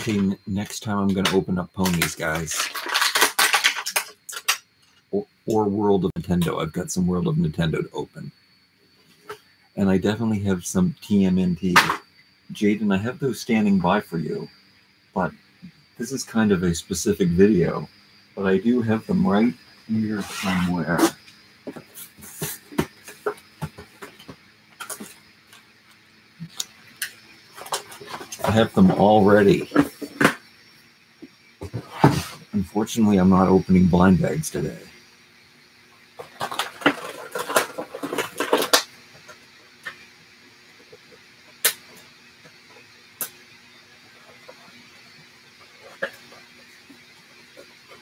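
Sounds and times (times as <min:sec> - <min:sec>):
hand rummaging through plastic tub: 0:01.8 - 0:04.5
foil packets crinkling: 0:01.8 - 0:04.6.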